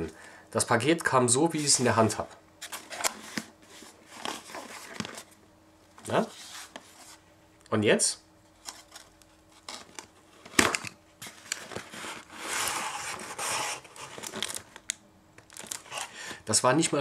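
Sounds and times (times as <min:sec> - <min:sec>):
cardboard scraping and rustling: 0:02.6 - 0:05.3, 0:08.6 - 0:14.7.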